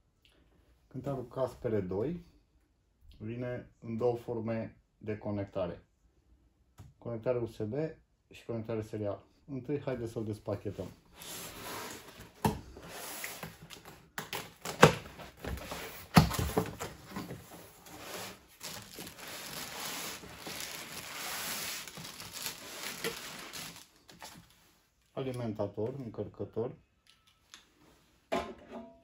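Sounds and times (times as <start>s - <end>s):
cardboard rustling and scraping: 10.7s - 24.6s.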